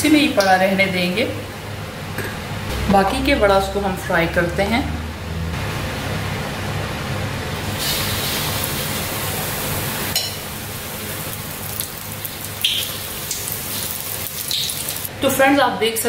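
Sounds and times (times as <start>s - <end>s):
food deep-frying in oil: 5.6s - 15.1s.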